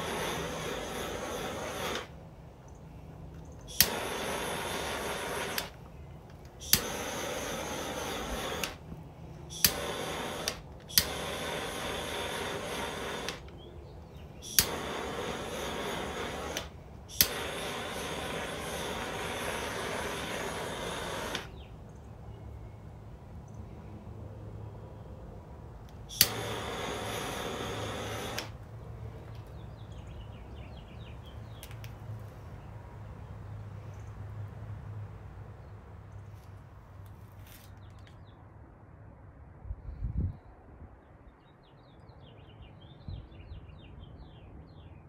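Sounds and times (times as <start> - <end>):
torch ignition click: 0.0 - 2.2, 3.3 - 21.7, 25.8 - 30.2
butane torch hissing: 0.0 - 2.3, 3.6 - 21.7, 25.9 - 28.7.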